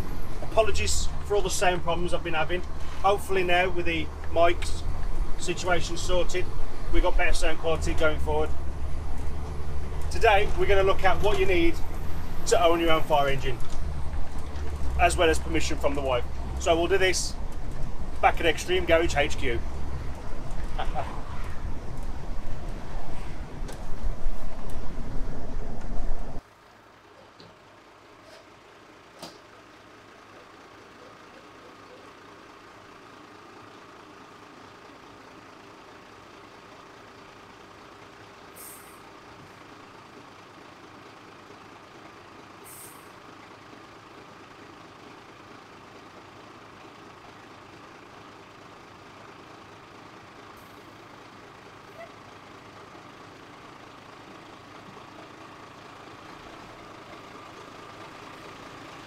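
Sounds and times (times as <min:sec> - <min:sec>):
diesel engine idling: 0:00.0 - 0:59.0
air brake hisses: 0:38.5 - 0:39.1, 0:42.6 - 0:43.2.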